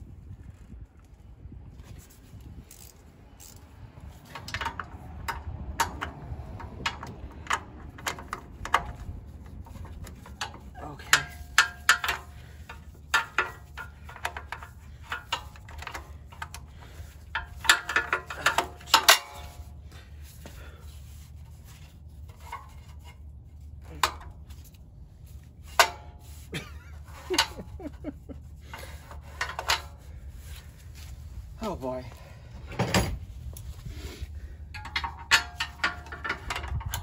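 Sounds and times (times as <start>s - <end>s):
wrench clinking on bolts: 4.2s - 19.6s, 34.7s - 37.0s.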